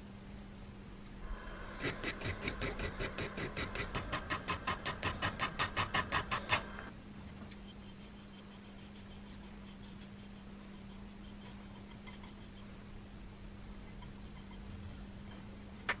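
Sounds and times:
steady low hum: 0.0s - 16.0s
file rasping on steel: 1.7s - 6.9s.

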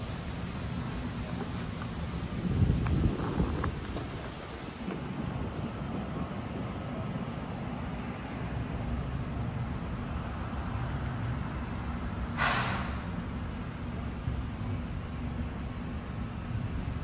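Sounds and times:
low rumble of road traffic: 0.0s - 17.0s
short hiss: 12.3s - 13.1s.

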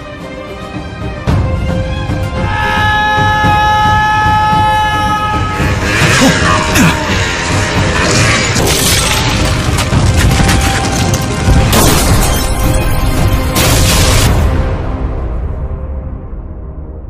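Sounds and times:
dramatic trailer music: 0.0s - 17.0s
crash and explosion hits: 7.5s - 14.9s.

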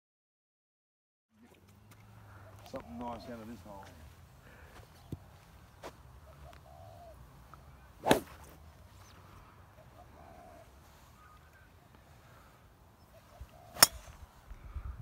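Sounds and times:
brief swish: 8.0s - 8.4s
golf club striking ball: 8.0s - 8.4s, 13.8s - 14.2s.

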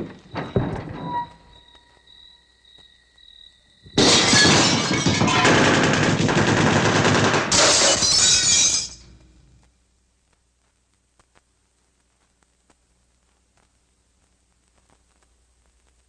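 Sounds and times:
crashing crackling noise: 9.2s - 16.0s.

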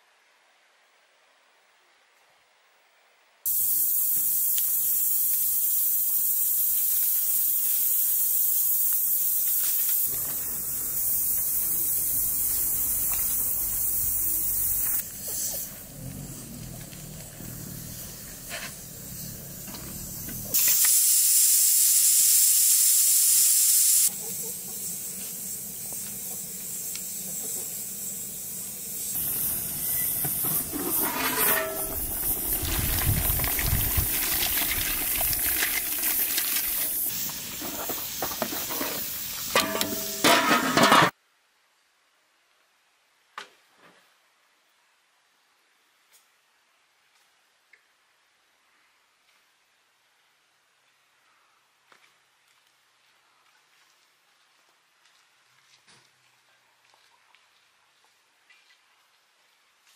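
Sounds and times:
steady hissing: 3.5s - 40.6s.

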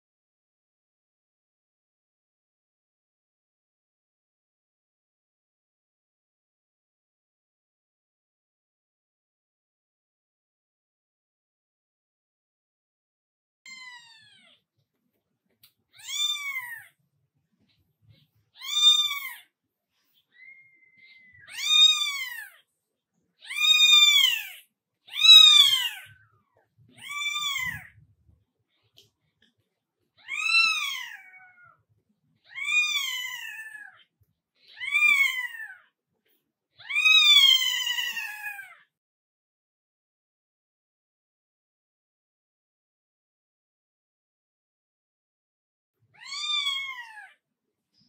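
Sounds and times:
newborn kitten mewing: 16.0s - 17.0s, 18.5s - 19.5s, 20.3s - 22.6s, 23.4s - 26.1s, 26.9s - 28.0s, 30.2s - 31.8s, 32.4s - 34.0s, 34.6s - 35.8s, 36.8s - 38.9s, 46.2s - 47.4s.

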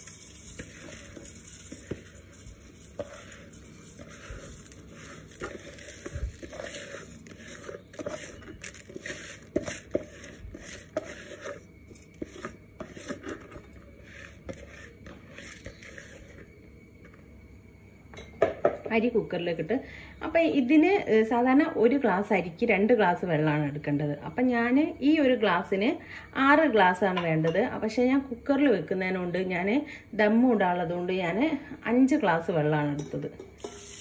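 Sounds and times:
hand scraping rice grains: 0.0s - 16.5s
falling rice grains pattering: 0.0s - 17.2s, 33.6s - 34.0s.

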